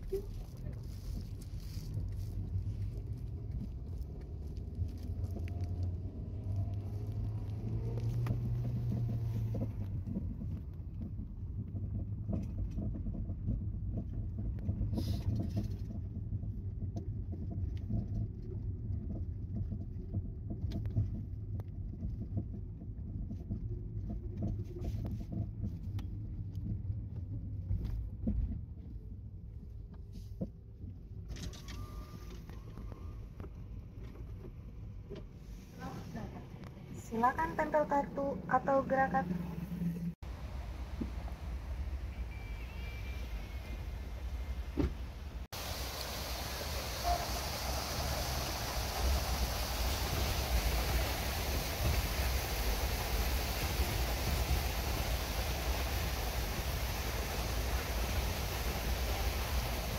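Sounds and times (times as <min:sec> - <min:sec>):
faint clicks and rattles: 0:00.0 - 0:37.7
road and engine rumble: 0:00.0 - 0:59.9.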